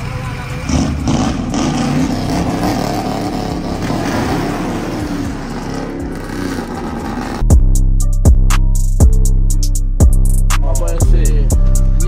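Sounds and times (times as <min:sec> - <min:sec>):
truck engine revving: 0:00.0 - 0:07.5.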